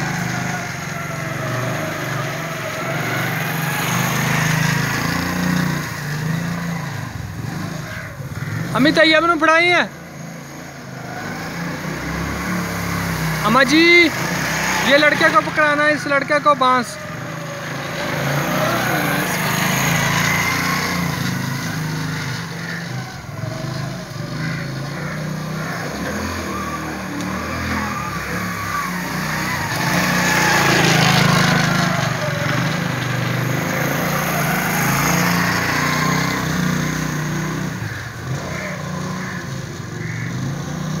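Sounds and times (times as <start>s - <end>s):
motorcycle engine running: 11.6s - 29.6s, 37.8s - 41.0s.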